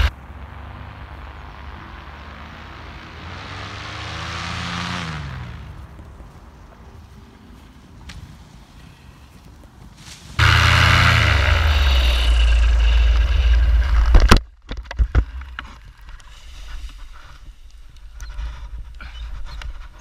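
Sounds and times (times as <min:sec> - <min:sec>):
paramotor engine and propeller: 0:00.0 - 0:06.3, 0:10.4 - 0:15.6
harness scraping on dirt: 0:10.0 - 0:14.3.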